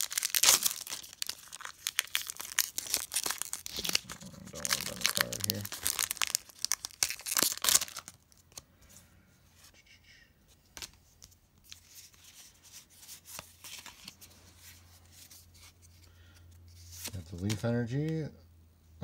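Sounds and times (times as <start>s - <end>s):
foil wrapper tearing and crinkling: 0.0s - 8.5s
cards rubbing and ticking: 0.3s - 8.1s.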